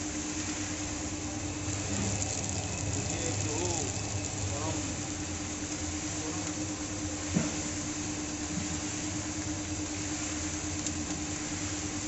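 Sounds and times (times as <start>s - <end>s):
motor hum: 0.0s - 12.0s
grains tumbling in drum: 1.2s - 5.7s.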